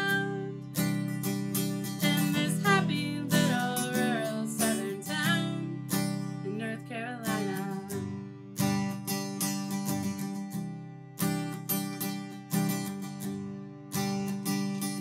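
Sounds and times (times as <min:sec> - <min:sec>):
woman singing: 0:00.0 - 0:08.2
acoustic guitar strumming: 0:00.0 - 0:15.0.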